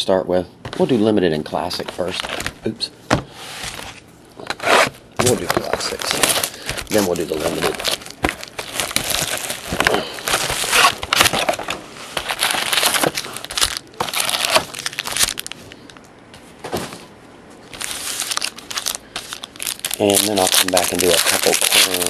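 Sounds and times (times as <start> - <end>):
cellophane wrap crinkling: 4.4 - 16.1, 17.7 - 22.0.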